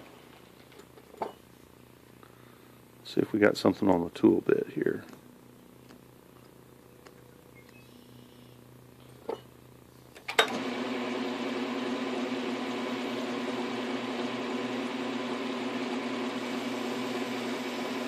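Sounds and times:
lathe running hum: 10.5s - 18.0s.

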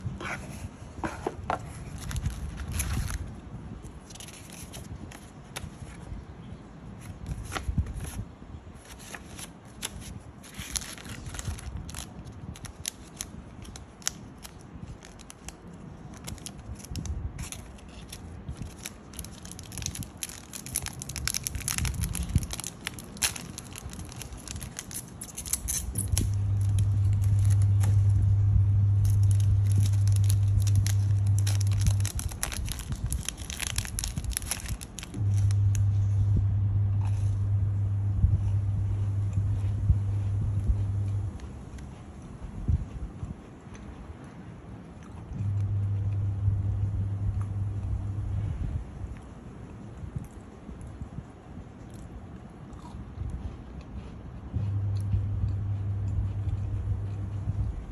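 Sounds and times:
paper rustling: 0.0s - 3.3s, 4.0s - 6.1s, 7.0s - 36.0s
foil wrapper crinkling and tearing: 1.7s - 5.9s, 8.8s - 36.1s
loud low hum: 18.4s - 43.3s, 45.1s - 49.4s, 54.4s - 57.9s.

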